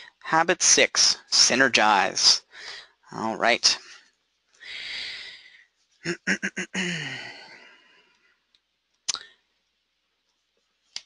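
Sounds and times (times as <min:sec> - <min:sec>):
man sighing: 0:06.1 - 0:07.9.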